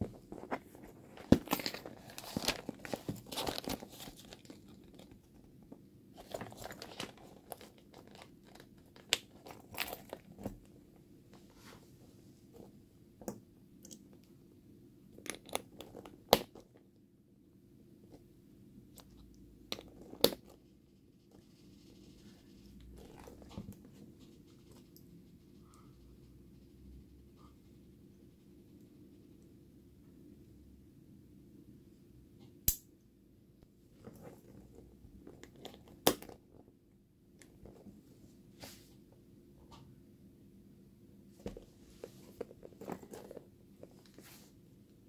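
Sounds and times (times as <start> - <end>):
handbag rustling and creaking: 0.0 - 11.8, 19.0 - 20.6, 21.4 - 25.0, 33.9 - 36.6, 41.4 - 44.6.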